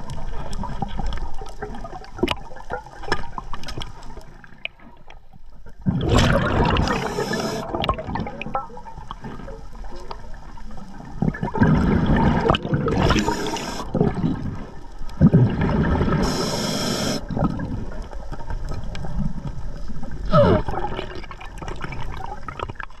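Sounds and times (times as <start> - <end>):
diver exhaling bubbles: 5.8 - 8.5, 11.4 - 14.5
regulator air hiss: 6.9 - 7.7, 13.1 - 13.9, 16.2 - 17.3.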